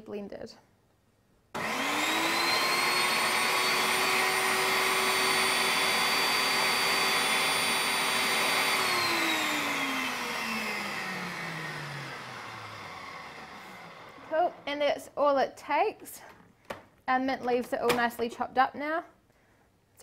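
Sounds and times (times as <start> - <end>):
food processor motor chopping: 1.6 - 14.6.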